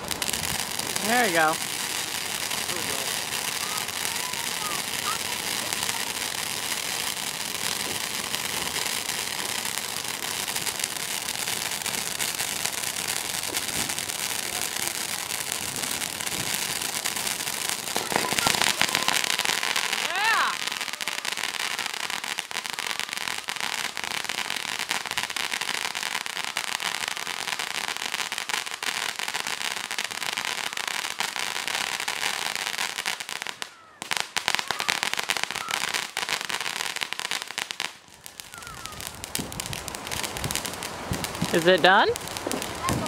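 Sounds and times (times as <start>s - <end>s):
firework fountain crackling and hissing: 0.0s - 43.0s.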